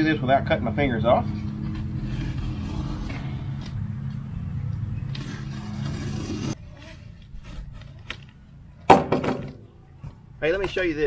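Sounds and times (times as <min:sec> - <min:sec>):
low engine hum: 0:00.0 - 0:06.6.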